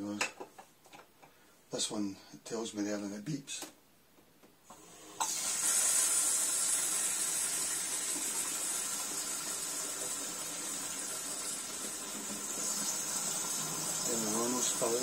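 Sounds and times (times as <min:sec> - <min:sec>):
water spraying from hose: 0:05.2 - 0:15.0.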